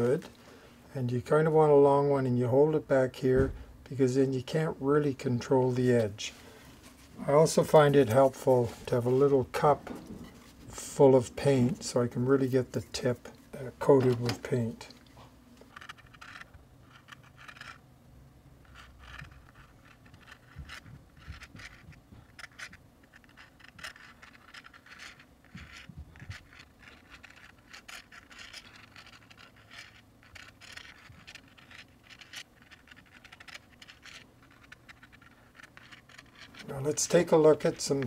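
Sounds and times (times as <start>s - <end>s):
twig scratching on paper: 15.7s - 17.8s, 18.6s - 38.0s.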